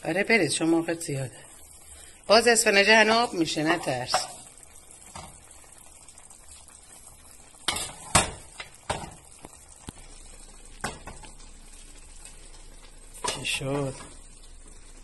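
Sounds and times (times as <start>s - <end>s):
faint sizzle: 0.0s - 15.0s.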